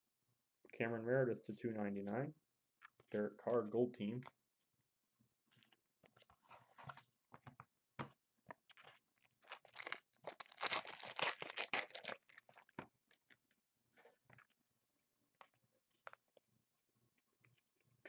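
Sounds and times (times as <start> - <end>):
wrapper tearing and crinkling: 8.8 - 13.3.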